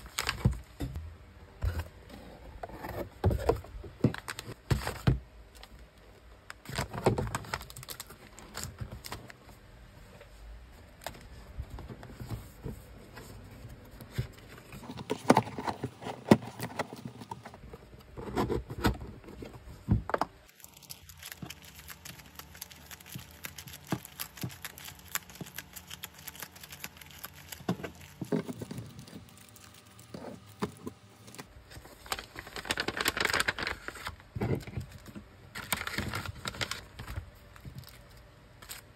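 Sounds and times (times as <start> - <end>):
paper and cellophane crinkling: 0.0 - 0.7, 6.6 - 9.4, 20.4 - 38.9.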